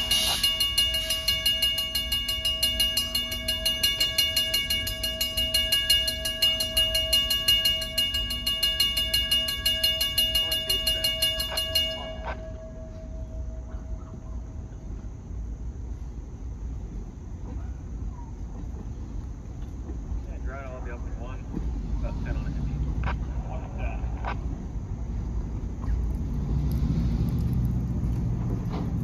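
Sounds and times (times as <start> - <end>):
railroad crossing bell ringing: 0.0 - 16.0.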